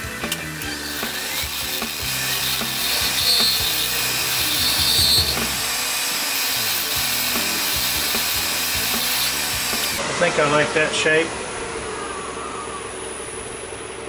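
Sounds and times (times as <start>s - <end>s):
lathe tool scraping wood: 0.6s - 10.0s.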